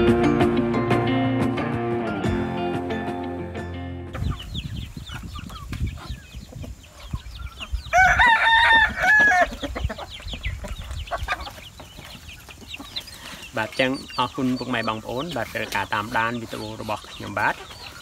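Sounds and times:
chickens clucking and cheeping: 0:04.0 - 0:18.0
rooster crowing: 0:07.9 - 0:09.6.

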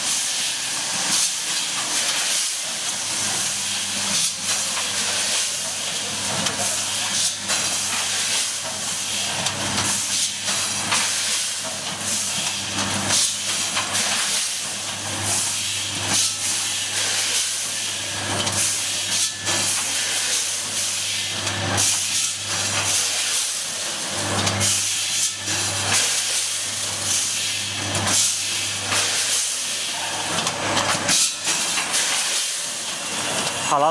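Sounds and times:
packaging machine hiss: 0:00.0 - 0:33.9.

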